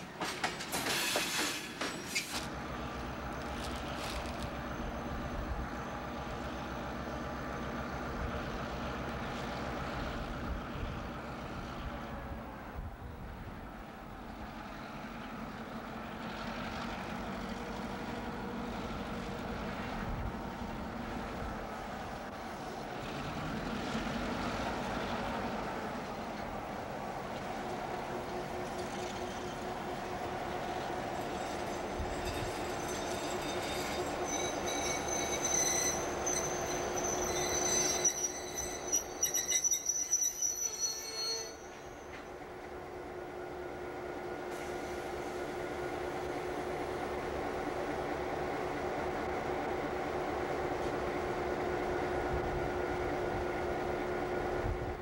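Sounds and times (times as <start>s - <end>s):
train clanks: 0.0s - 5.1s, 24.5s - 42.8s
diesel locomotive engine drone: 0.0s - 55.0s
train wheels squealing: 0.6s - 2.5s, 28.6s - 29.9s, 30.7s - 42.5s.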